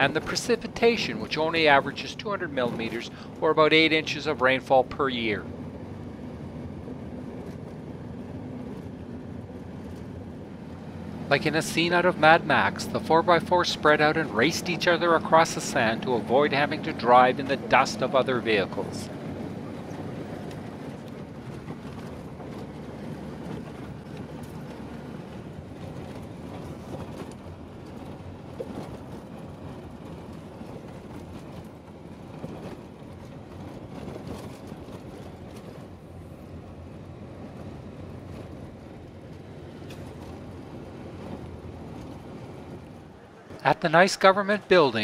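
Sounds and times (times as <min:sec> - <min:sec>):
engine and tyre noise: 0:00.0 - 0:45.0.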